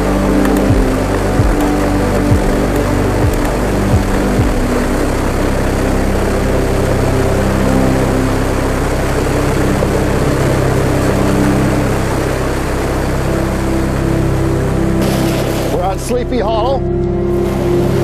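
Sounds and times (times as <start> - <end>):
background music of sustained chords: 0.0 - 18.0
steady low rumble: 0.0 - 18.0.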